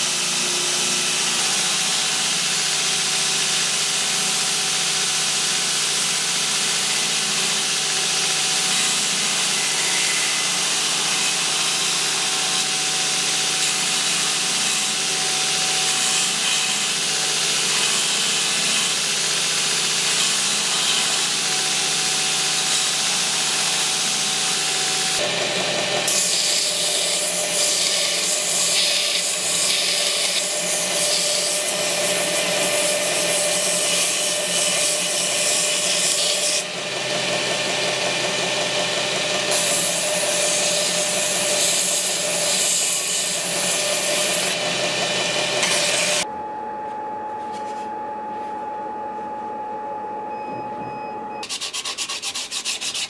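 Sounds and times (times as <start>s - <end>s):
belt grinder grinding: 1.0s - 46.2s, 51.4s - 53.0s
faint machine hum: 45.6s - 51.4s.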